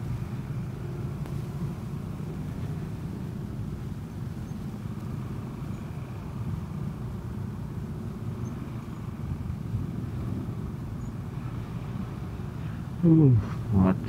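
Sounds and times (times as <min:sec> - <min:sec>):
road traffic: 0:00.0 - 0:14.0
vehicle engine rumble: 0:00.0 - 0:14.0.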